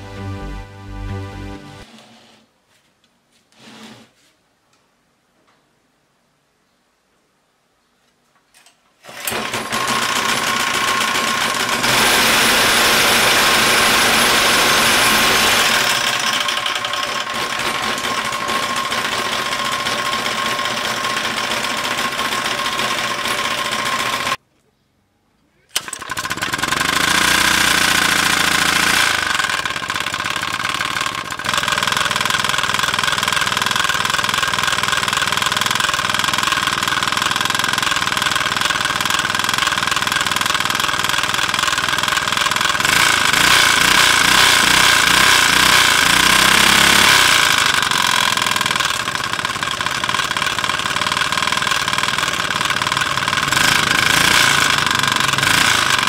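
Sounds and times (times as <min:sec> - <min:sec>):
small gasoline engine running: 0:09.0 - 0:24.4, 0:25.7 - 0:56.0.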